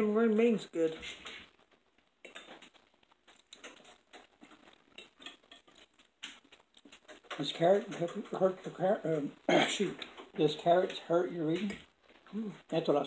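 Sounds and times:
forks tapping on plates: 0:02.2 - 0:02.7, 0:05.0 - 0:08.4.

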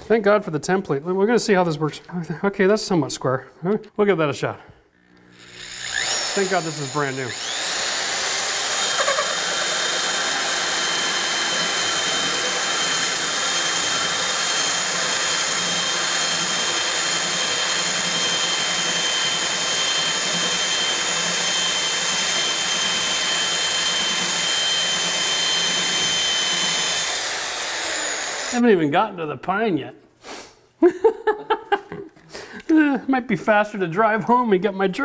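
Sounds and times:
drill boring into wood: 0:05.0 - 0:28.7.

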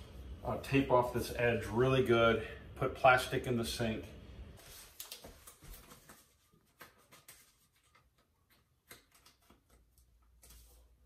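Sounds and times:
tape rustling: 0:04.6 - 0:11.0.

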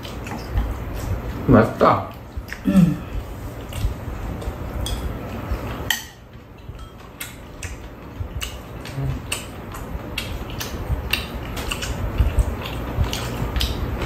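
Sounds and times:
spoons and chopsticks clinking on bowls: 0:06.8 - 0:07.4.

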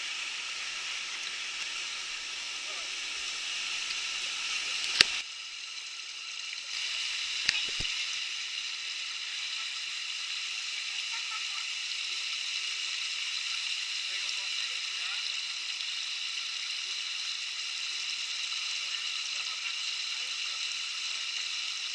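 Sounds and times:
sharp clicks: 0:07.4 - 0:07.9.

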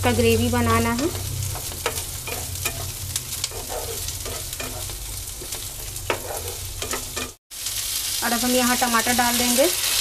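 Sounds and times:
onions sizzling in frying pan: 0:00.0 - 0:10.0
wooden spatula scraping pan: 0:00.9 - 0:07.4.

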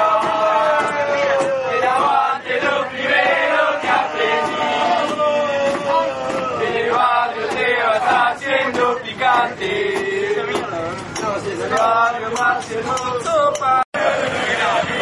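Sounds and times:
crowd singing a chant: 0:00.0 - 0:15.0.

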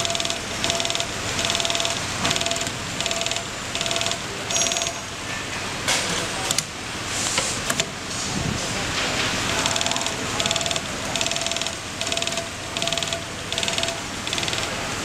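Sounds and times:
sharp clicks: 0:09.5 - 0:14.7.

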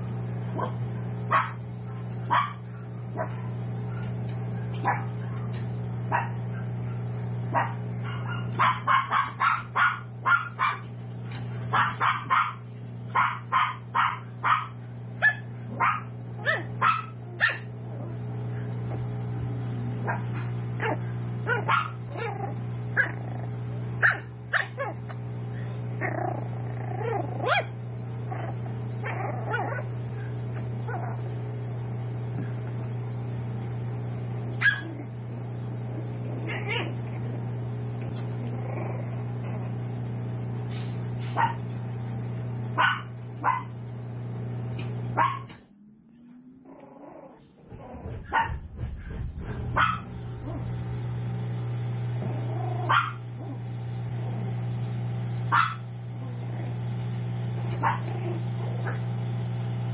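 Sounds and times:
steady low hum: 0:00.0 - 0:59.9
puppies yapping: 0:00.6 - 0:07.0, 0:07.6 - 0:17.7, 0:20.1 - 0:23.3, 0:24.0 - 0:25.2, 0:26.0 - 0:29.9, 0:34.6 - 0:35.1, 0:41.1 - 0:41.8, 0:42.8 - 0:43.7, 0:44.7 - 0:45.7, 0:46.3 - 0:50.8, 0:52.2 - 0:53.6, 0:55.5 - 0:55.9, 0:57.6 - 0:58.2.

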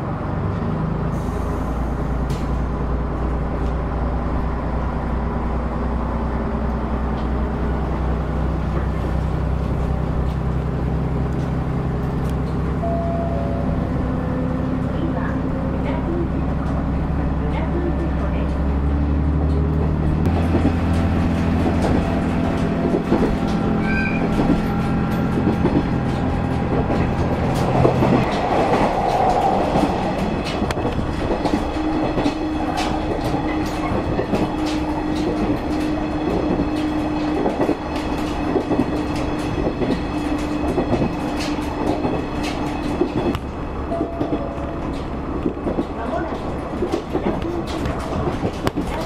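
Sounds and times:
low engine drone: 0:00.0 - 0:33.6
steady train ride hum: 0:00.0 - 0:49.0
wheels clicking over rail joints: 0:14.4 - 0:49.0.

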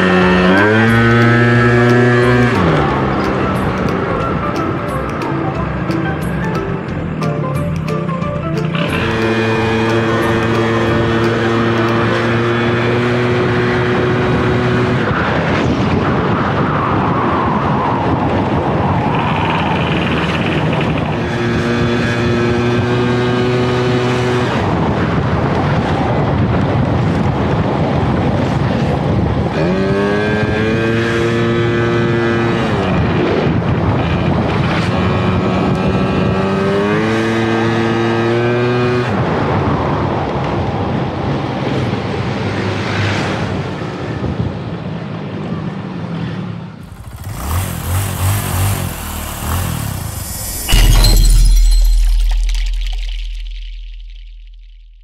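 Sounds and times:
scooter engine running: 0:00.0 - 0:14.5, 0:46.8 - 0:50.8
wind and road noise: 0:00.0 - 0:55.0.

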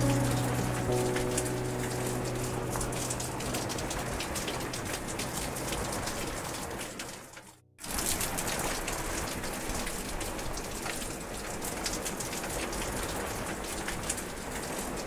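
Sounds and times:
raindrop ticks: 0:00.0 - 0:15.0
steady rain: 0:00.0 - 0:15.0.

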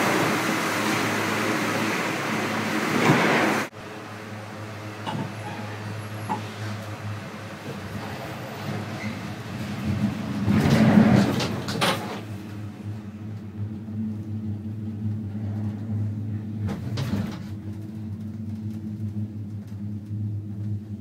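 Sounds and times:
gondola cabin low hum: 0:00.0 - 0:21.0
gondola cabin rattling clatter: 0:04.4 - 0:21.0.

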